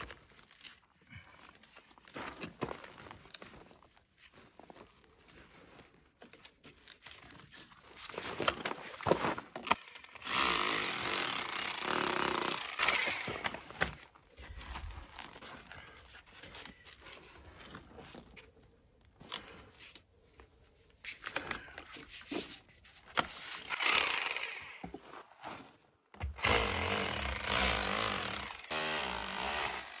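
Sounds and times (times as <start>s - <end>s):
rotary hammer chipping mortar: 10.2s - 14.0s, 26.2s - 30.0s.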